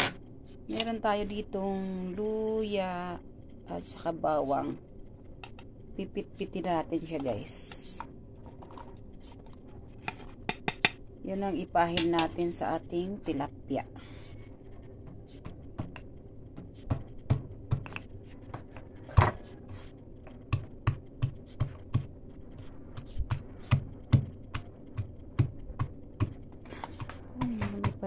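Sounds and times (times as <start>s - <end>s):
pestle pounding in stone mortar: 23.0s - 28.0s.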